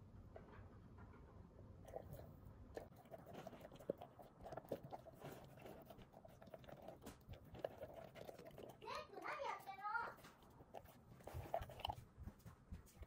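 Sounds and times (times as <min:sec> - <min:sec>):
puppy crunching dry kibble: 0:01.8 - 0:13.0.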